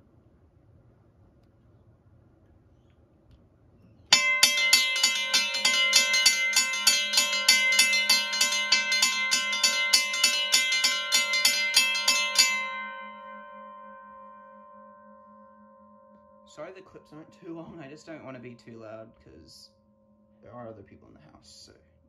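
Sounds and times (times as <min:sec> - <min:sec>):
railway crossing bells ringing: 0:04.1 - 0:20.0.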